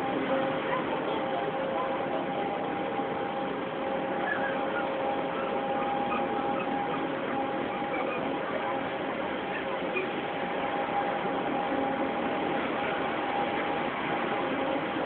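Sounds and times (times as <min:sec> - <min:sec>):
faint steady whine: 0:00.0 - 0:15.0.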